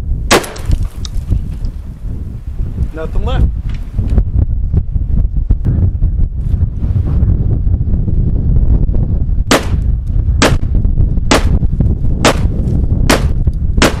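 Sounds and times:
wind rumble on microphone: 0.0 - 14.0
shotgun shots: 0.3 - 0.8, 9.5 - 9.8, 10.4 - 10.7, 11.3 - 11.6, 12.2 - 12.5, 13.1 - 14.0.

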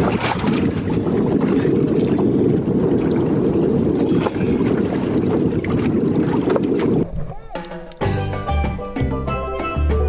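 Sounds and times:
wind buffeting microphone: 0.0 - 7.6
water splashes: 0.0 - 9.0.

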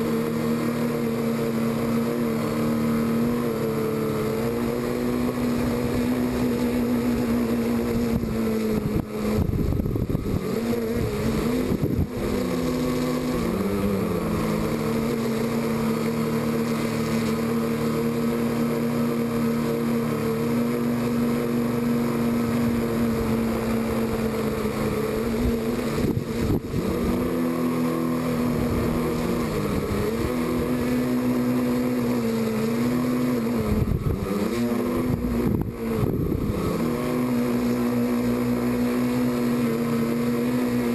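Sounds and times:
drone motors and propellers humming: 0.0 - 40.9
rushes of air noise: 5.4 - 16.2, 23.0 - 31.2, 33.4 - 38.7.

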